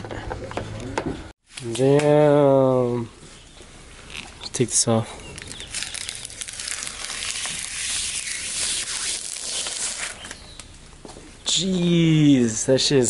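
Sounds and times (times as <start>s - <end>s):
plastic film peeling: 5.3s - 10.7s.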